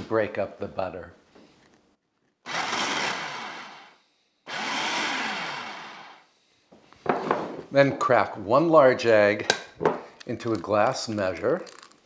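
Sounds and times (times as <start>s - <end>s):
food processor whirring: 2.5s - 6.2s.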